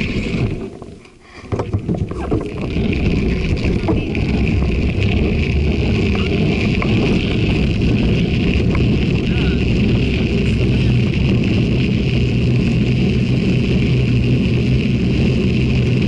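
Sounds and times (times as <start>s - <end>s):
bicycle tyres on wet pavement: 0.0s - 16.0s
wind noise on microphone: 0.0s - 16.0s
knocks: 0.8s - 2.7s.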